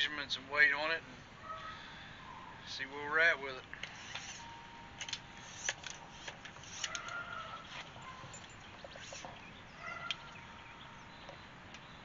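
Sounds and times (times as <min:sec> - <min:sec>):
tape measure clicks and rustles: 0:03.8 - 0:09.3.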